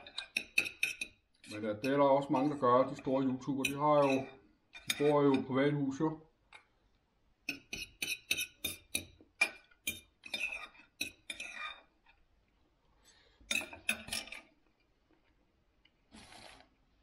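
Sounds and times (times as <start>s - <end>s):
knife and fork clinking on plate: 3.6s - 5.5s, 13.5s - 14.5s.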